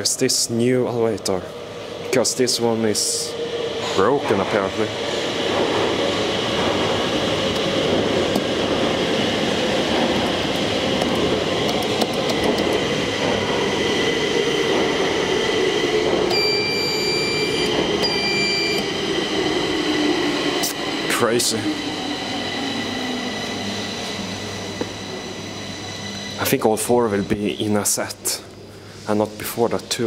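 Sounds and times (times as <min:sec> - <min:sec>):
metro train rumble: 0:00.0 - 0:30.0
high electronic beeps: 0:16.3 - 0:18.8.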